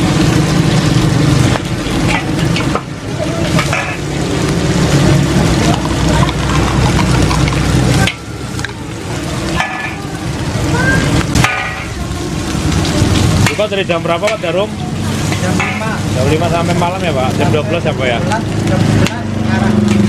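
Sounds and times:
food sizzling in a wok: 0.0 - 20.0
metal spatula scraping pan: 1.8 - 4.2, 9.5 - 10.0, 11.3 - 12.0, 15.2 - 16.1.

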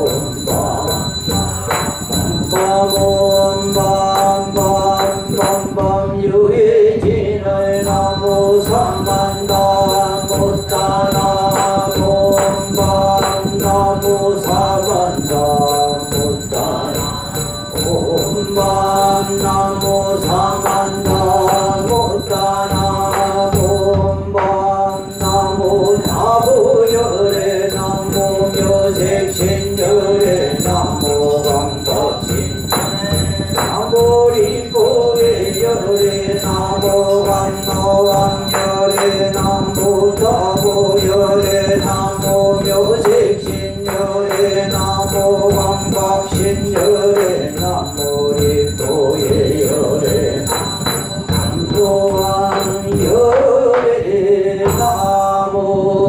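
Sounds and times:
jingling bells: 0.0 - 6.0, 7.6 - 53.6, 54.6 - 55.6
monk and assembly chanting: 0.0 - 56.0
struck percussion beat: 0.0 - 56.0.

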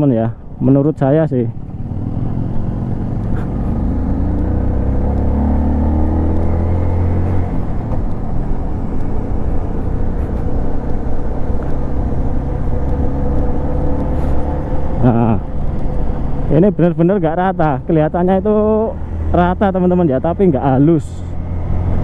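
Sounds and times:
road and wind noise: 0.0 - 22.0
motorcycle engine running: 0.5 - 17.3.

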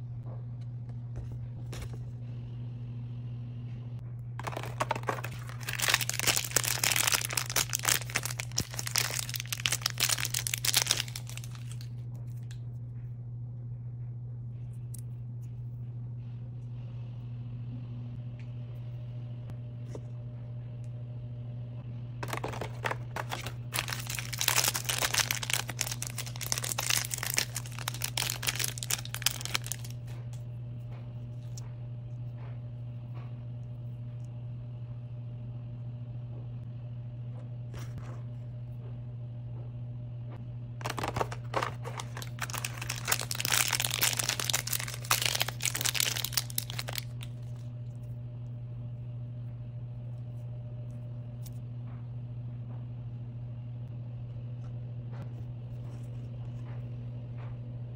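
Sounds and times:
steady low hum: 0.0 - 57.9
foil wrapper crinkling and tearing: 4.4 - 11.9, 22.2 - 30.1, 40.8 - 47.6.

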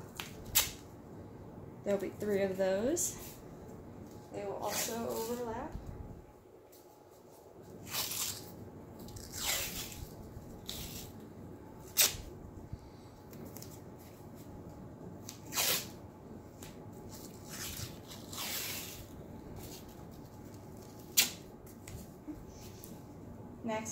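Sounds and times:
tape tearing snap: 0.1 - 0.8, 7.8 - 11.1, 11.9 - 12.3, 15.2 - 15.9, 21.0 - 21.4.

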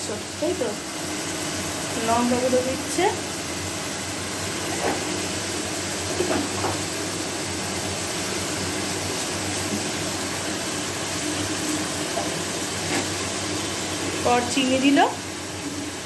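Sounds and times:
rushing kitchen noise: 0.0 - 16.0.

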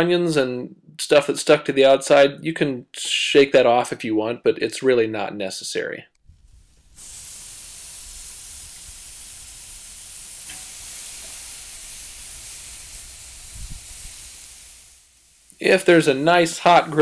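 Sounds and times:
meat sizzling on a grill: 6.4 - 17.0.

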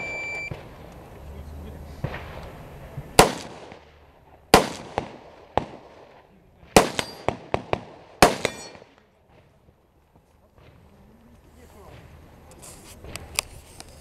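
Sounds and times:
loud rifle shots with echo: 3.2 - 9.0.

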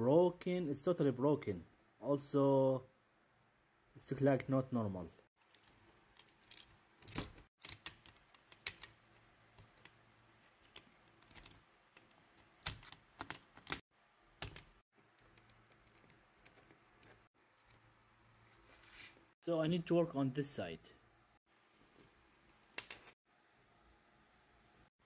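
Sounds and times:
plastic and small tools clicking: 5.4 - 13.8.

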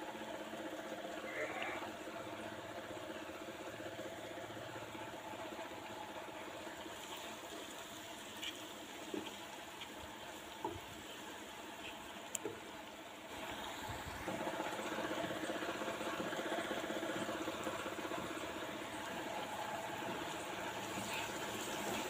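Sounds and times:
vegetables sizzling in oil: 18.9 - 22.0.

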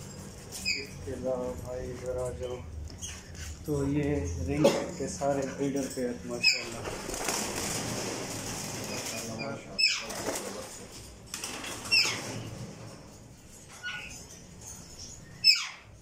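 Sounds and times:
parakeets screeching: 0.2 - 1.3, 6.1 - 10.7, 11.6 - 12.6, 13.7 - 16.0.

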